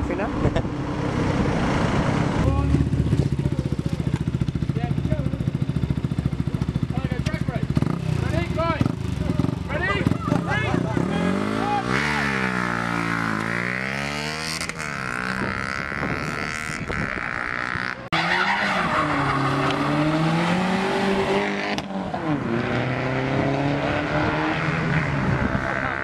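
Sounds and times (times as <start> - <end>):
motorcycle engine revving: 0.0 - 18.2, 18.8 - 26.0
car engine revving hard: 10.0 - 26.0.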